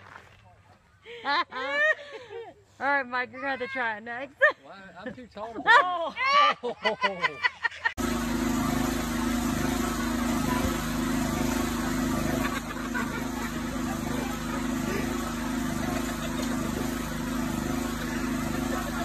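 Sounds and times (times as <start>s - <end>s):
power trowel engine running: 8.0s - 19.0s.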